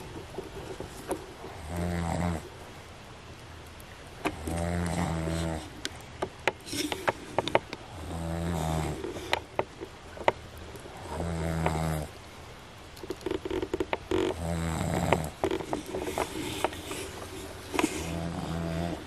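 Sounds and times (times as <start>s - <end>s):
man snoring: 1.6s - 2.4s, 4.4s - 5.7s, 8.0s - 9.0s, 11.1s - 12.1s, 14.3s - 15.4s, 18.1s - 19.0s.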